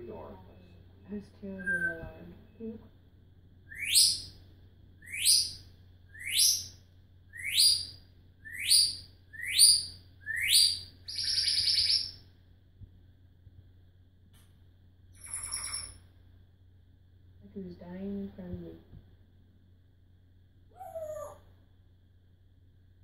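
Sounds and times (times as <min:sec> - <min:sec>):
parrot rising whistles: 0:03.7 - 0:04.3, 0:05.0 - 0:12.2
parrot buzzy pulsing call: 0:15.2 - 0:16.0.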